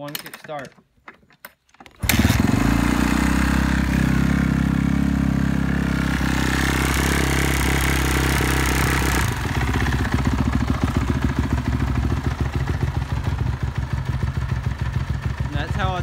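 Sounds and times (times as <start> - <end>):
motorcycle engine idling: 2.1 - 16.0.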